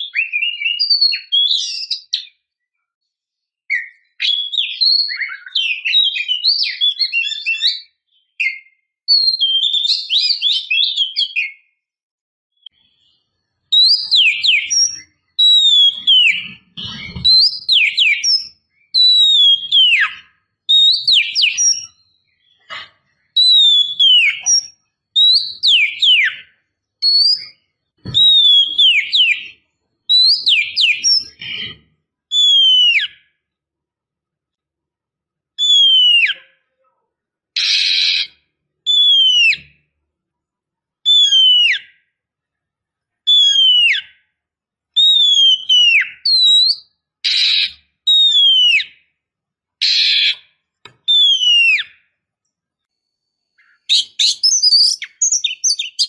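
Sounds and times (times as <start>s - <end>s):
bird chattering and whistling: 0.0s - 2.3s, 3.7s - 11.6s, 12.7s - 33.2s, 35.6s - 36.5s, 37.6s - 39.7s, 41.1s - 42.0s, 45.0s - 49.0s, 49.8s - 50.4s, 51.1s - 52.0s, 53.5s - 56.0s.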